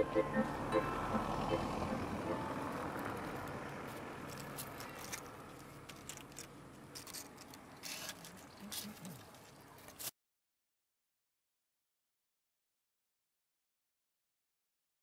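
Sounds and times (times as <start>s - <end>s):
background music: 0.0s - 2.8s.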